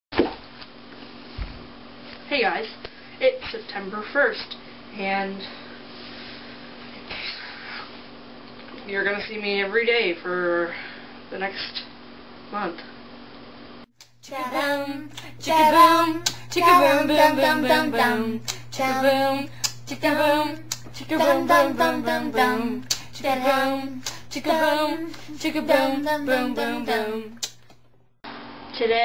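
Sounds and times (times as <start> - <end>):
steady low hum: 14.0 - 28.1
woman singing: 14.2 - 27.4
hand claps: 20.7 - 20.9.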